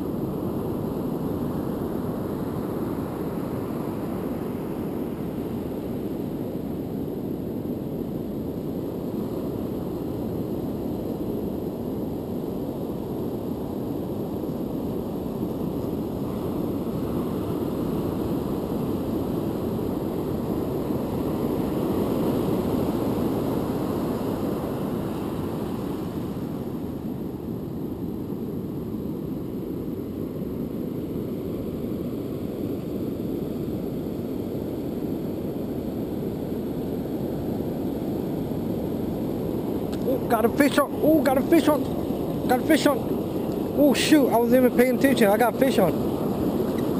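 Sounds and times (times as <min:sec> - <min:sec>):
wind on microphone: 0:00.0 - 0:46.9
ocean surf roaring: 0:08.8 - 0:28.1, 0:34.4 - 0:46.9.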